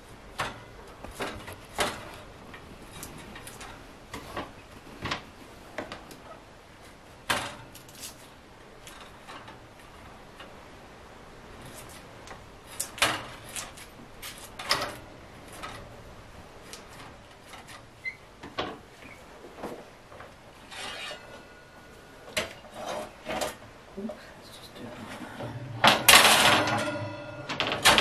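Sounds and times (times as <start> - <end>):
metal tins clinking on wire rack: 25.4 - 28.0.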